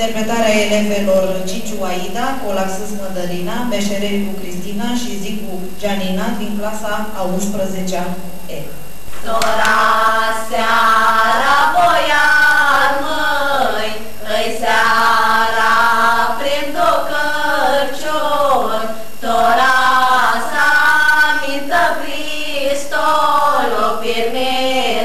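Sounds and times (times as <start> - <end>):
women singing a cappella: 8.5 - 25.0.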